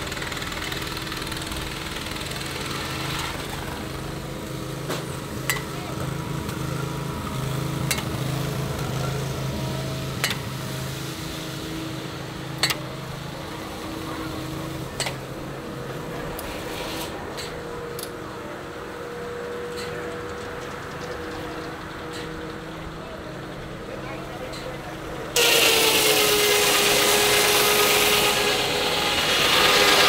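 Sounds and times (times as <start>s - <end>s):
sawmill mechanical hum: 0.0s - 30.0s.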